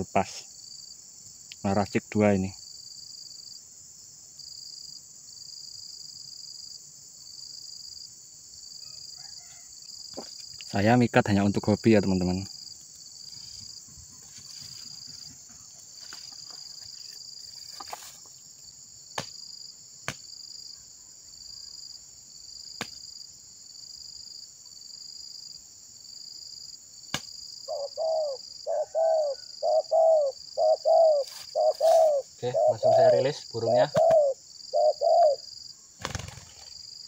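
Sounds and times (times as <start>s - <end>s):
insects buzzing: 0.0s - 37.0s
dove cooing: 27.7s - 35.4s.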